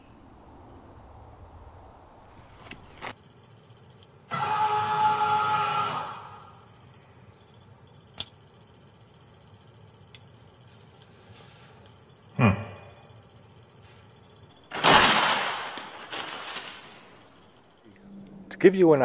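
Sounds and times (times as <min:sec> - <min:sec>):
paper towel dispenser motor whirring: 0:04.3 - 0:06.7.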